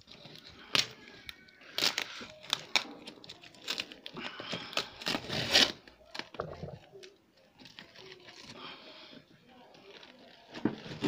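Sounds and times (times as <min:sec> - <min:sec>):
packing tape ripping: 0:04.7 - 0:06.3.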